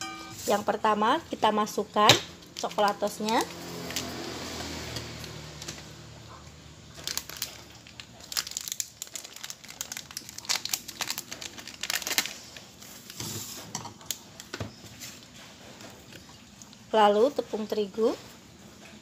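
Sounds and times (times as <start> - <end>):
plastic sachet crinkling: 2.5 - 4.2, 6.9 - 13.2.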